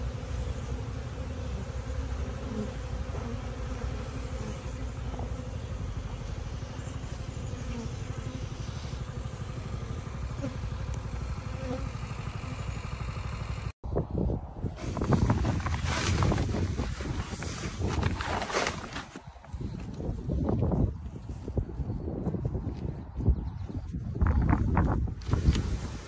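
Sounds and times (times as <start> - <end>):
honey bees buzzing: 0.0 - 13.7.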